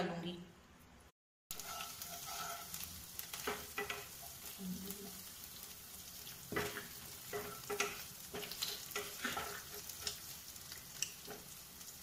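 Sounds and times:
wooden spatula scraping wok: 1.5s - 5.2s, 6.2s - 10.4s
light sizzle of frying: 1.5s - 12.0s.

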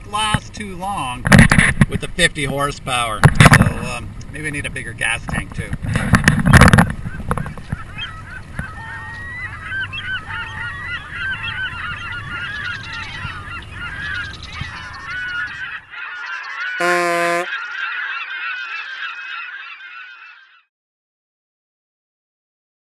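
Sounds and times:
wind: 0.0s - 20.7s
flock of geese honking: 6.0s - 20.7s
single horn-like honk: 16.8s - 17.5s.

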